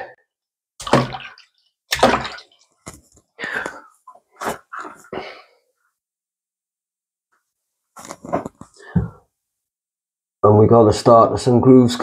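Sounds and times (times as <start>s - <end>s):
tap water splashing: 0.8s - 3.0s.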